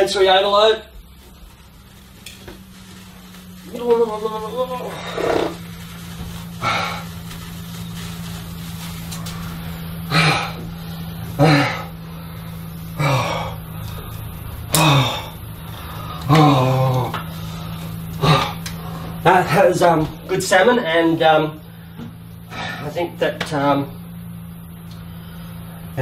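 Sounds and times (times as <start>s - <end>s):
steady low hum: 0.0s - 26.0s
man gasping grunts: 10.1s - 10.6s, 11.4s - 12.0s, 14.7s - 15.4s.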